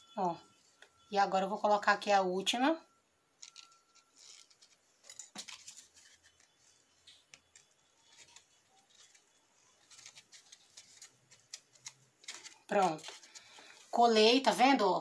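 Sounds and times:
fingers handling foam petals: 0:03.4 - 0:14.0.

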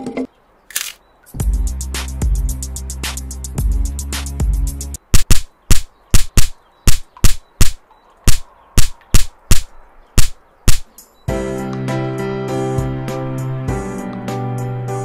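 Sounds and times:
music: 0:01.3 - 0:05.0, 0:11.0 - 0:15.0
sharp gunshots: 0:05.1 - 0:10.8.

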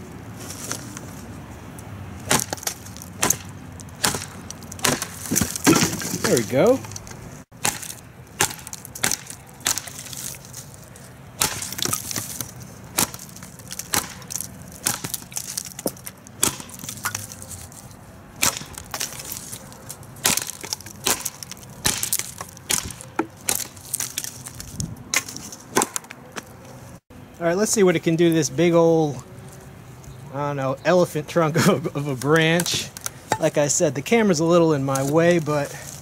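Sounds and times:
knife chopping wood: 0:02.2 - 0:06.8, 0:07.5 - 0:10.4, 0:11.4 - 0:17.5, 0:18.4 - 0:19.6, 0:20.2 - 0:24.3, 0:25.1 - 0:26.5, 0:32.2 - 0:33.6.

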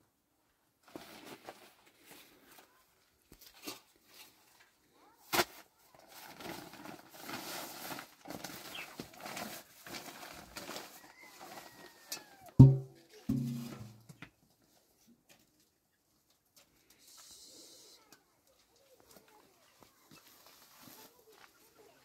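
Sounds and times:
cloth and plastic bag rustling: 0:00.8 - 0:02.8, 0:05.9 - 0:11.9
sharp knock: 0:12.6 - 0:13.9.

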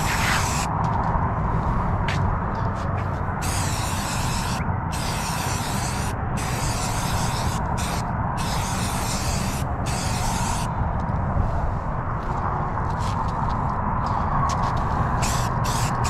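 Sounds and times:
aerosol spray can hissing: 0:00.0 - 0:00.7, 0:03.4 - 0:10.7, 0:15.2 - 0:16.0.

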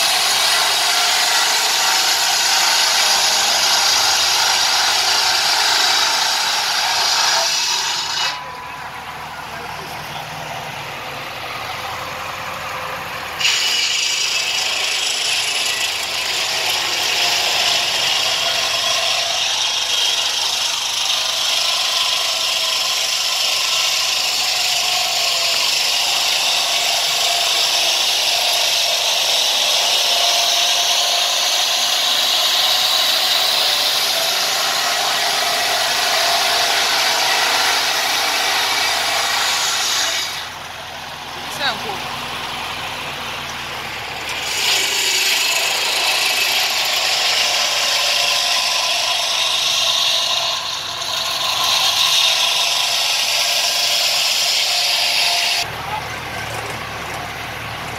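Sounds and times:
band saw cutting log: 0:00.0 - 0:57.8.

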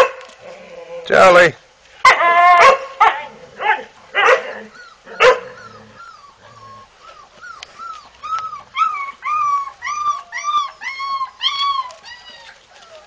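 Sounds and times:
dog whining: 0:04.4 - 0:13.0.

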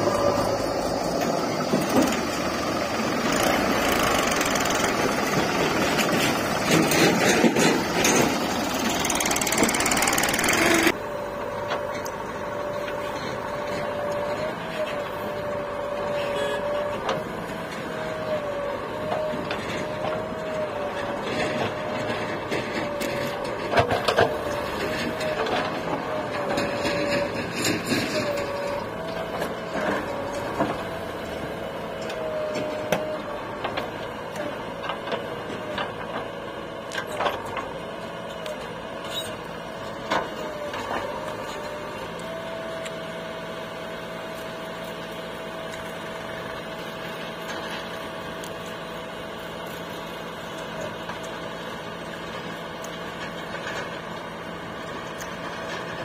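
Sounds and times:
diesel engine whining under load: 0:00.0 - 0:56.0.

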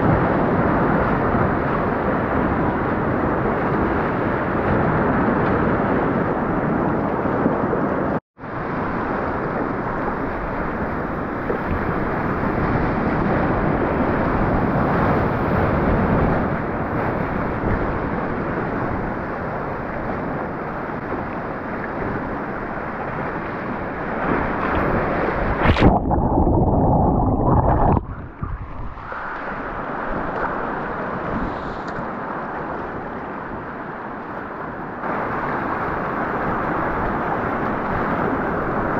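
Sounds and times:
sudden splash: 0:24.8 - 0:29.6
rushing whitewater: 0:28.8 - 0:38.9.

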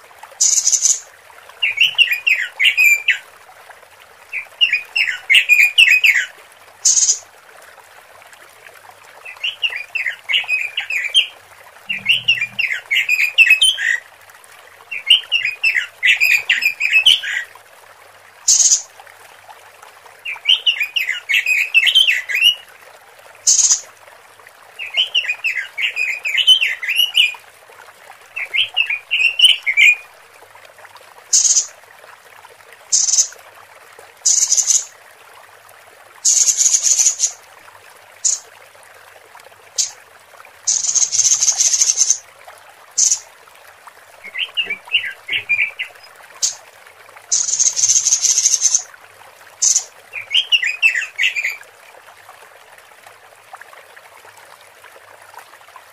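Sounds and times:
bird warbled chattering: 0:00.4 - 0:01.0, 0:11.9 - 0:13.7, 0:36.3 - 0:37.3, 0:40.7 - 0:42.2, 0:43.0 - 0:43.2, 0:44.2 - 0:46.6, 0:47.3 - 0:48.8, 0:49.6 - 0:49.9.

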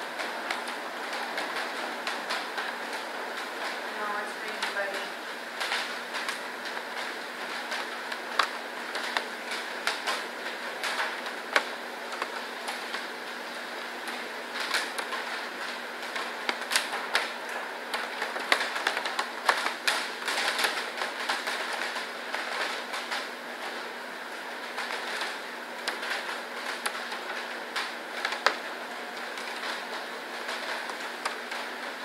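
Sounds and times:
machine hum and hiss: 0:00.0 - 0:32.0.

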